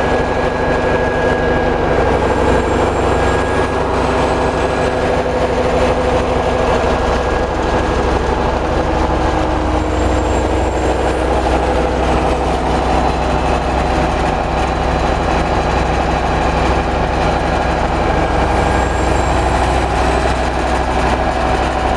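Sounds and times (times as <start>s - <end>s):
large gas engine running: 0.0s - 21.9s.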